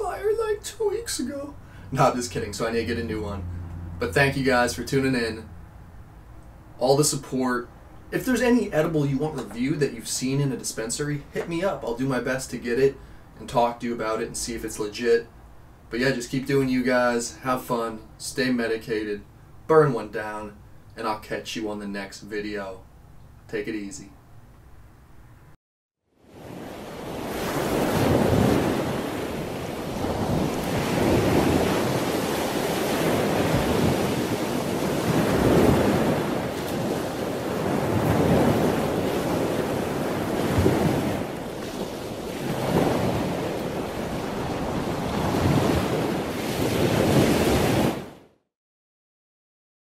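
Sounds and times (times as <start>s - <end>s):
ocean waves washing: 0.0s - 5.8s, 6.7s - 14.8s, 26.2s - 48.3s
wind: 0.0s - 48.4s.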